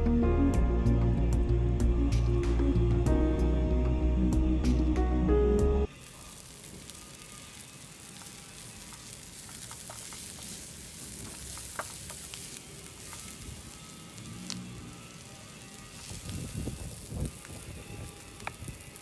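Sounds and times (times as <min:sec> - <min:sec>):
samosa sizzling in hot oil: 0:05.9 - 0:19.0
oil popping: 0:06.0 - 0:19.0.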